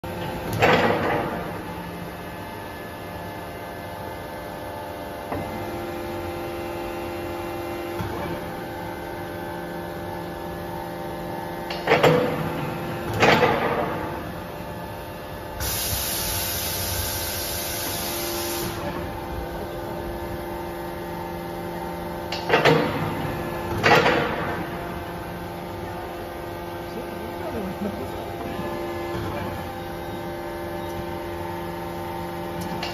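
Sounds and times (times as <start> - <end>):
hydraulic power unit humming: 0.0 - 32.9
loud hydraulic hiss: 15.6 - 18.9.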